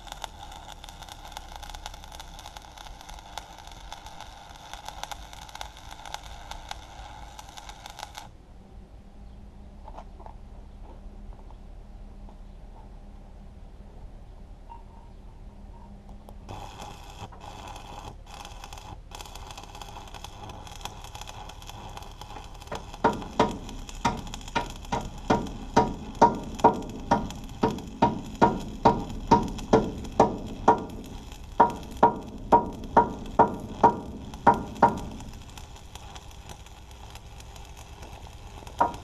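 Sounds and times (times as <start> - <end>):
arc welding crackling hiss: 0.0 - 8.3, 16.3 - 39.0
sharp metallic ticks: 0.0 - 8.3, 16.2 - 39.0.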